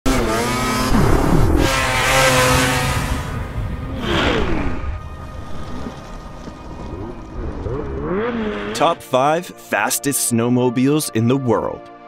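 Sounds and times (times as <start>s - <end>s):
snowmobile engine revving: 0.1s - 5.0s, 6.0s - 9.0s
music: 3.2s - 12.0s.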